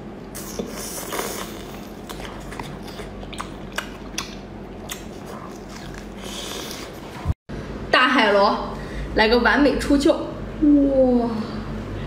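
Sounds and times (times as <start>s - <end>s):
wet chewing and smacking: 0.4s - 7.2s.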